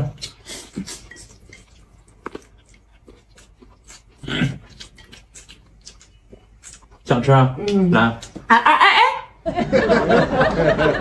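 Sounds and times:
chewing: 0.1s - 8.5s.

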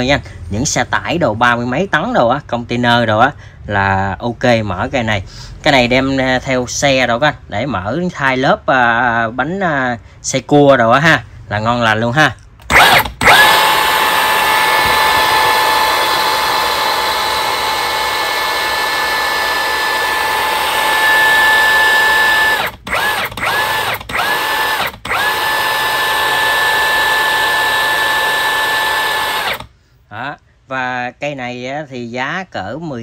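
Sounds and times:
impact wrench motor whine: 12.6s - 29.7s.

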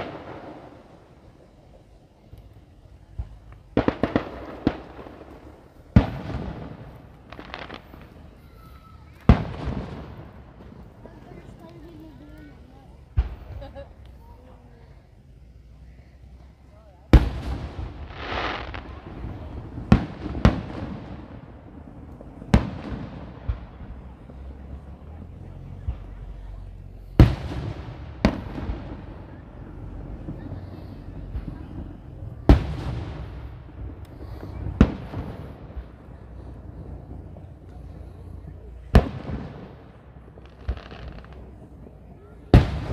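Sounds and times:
firework bangs: 0.0s - 42.9s
firework crackles: 0.0s - 42.9s
firework thump: 2.3s - 8.1s.

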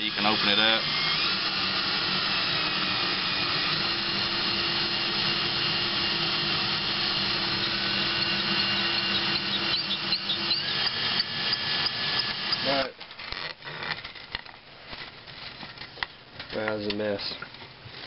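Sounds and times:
electric drill running: 0.0s - 14.1s.

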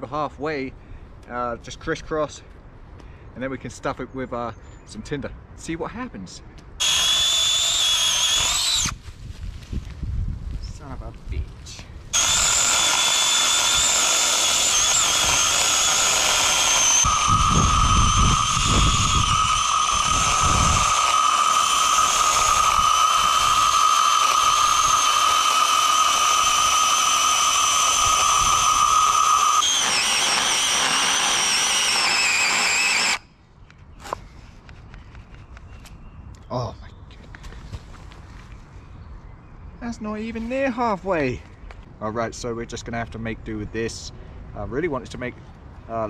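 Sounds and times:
battery chainsaw cutting log: 6.8s - 9.0s, 12.1s - 33.2s.

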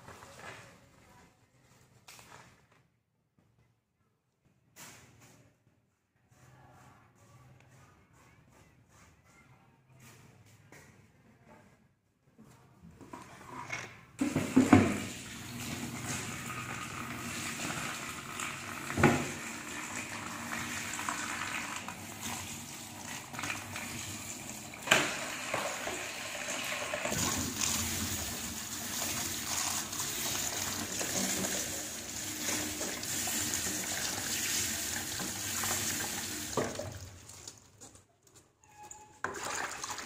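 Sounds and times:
tap water splashing into basin: 32.4s - 37.6s, 39.2s - 40.0s.

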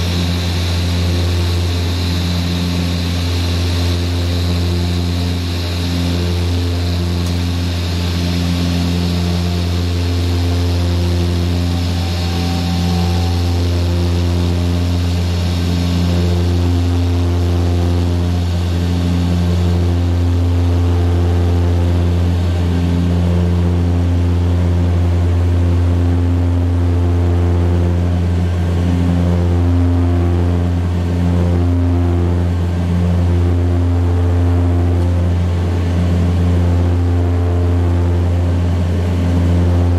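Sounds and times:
high hiss in aircraft cabin: 0.0s - 20.1s
deep propeller drone: 0.0s - 39.9s.

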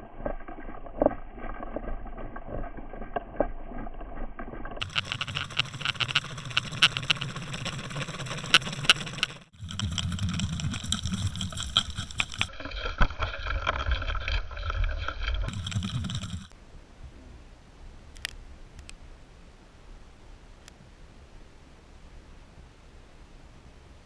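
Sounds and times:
sharp clicks and knocks: 4.1s - 16.5s.

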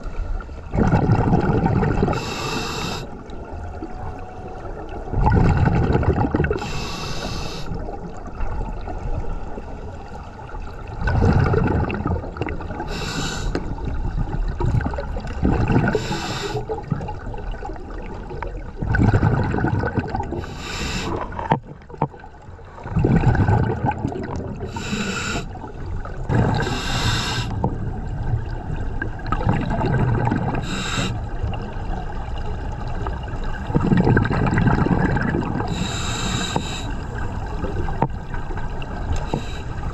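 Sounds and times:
exhaled bubbles rumbling: 0.0s - 39.9s
regulator inhalation hiss: 2.2s - 3.2s, 6.6s - 7.8s, 12.9s - 13.6s, 15.9s - 16.6s, 20.4s - 21.2s, 24.7s - 25.5s, 26.6s - 27.6s, 30.6s - 31.2s, 35.7s - 37.0s.

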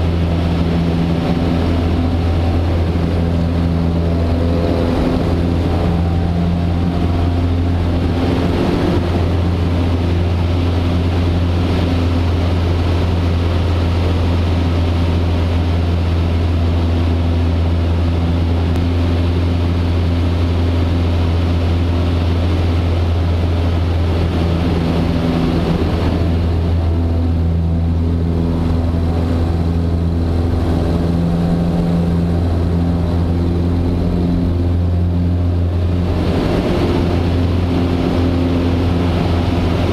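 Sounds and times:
airplane engine and propeller droning: 0.0s - 39.9s
rush of airflow: 0.0s - 39.9s.

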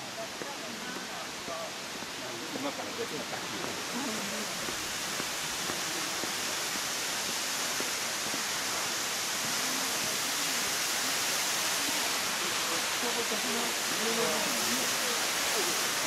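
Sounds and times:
waterfall rushing: 0.0s - 16.0s
faint voices: 8.2s - 16.0s.

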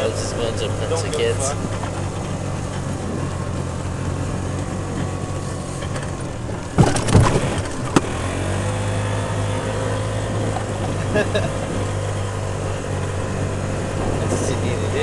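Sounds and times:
golf cart driving drone: 0.0s - 15.0s
knocks and rattles: 5.8s - 8.2s.

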